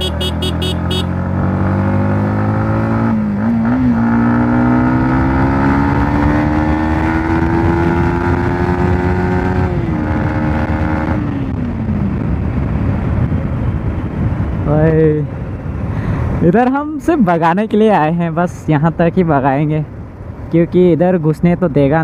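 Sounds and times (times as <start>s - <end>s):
motorcycle engine accelerating: 0.0s - 14.1s
wind rushing over microphone: 1.2s - 16.6s.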